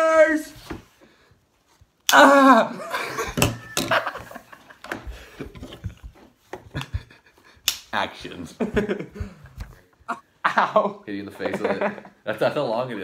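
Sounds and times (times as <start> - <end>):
loud vocal exclamation: 2.1 - 2.8
young men laughing: 2.5 - 5.4, 6.7 - 7.6, 8.4 - 12.3.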